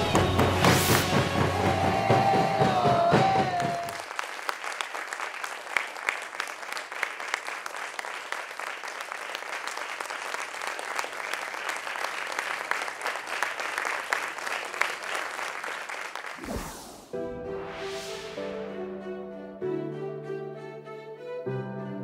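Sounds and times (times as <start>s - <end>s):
crowd applauding: 0.0s - 17.0s.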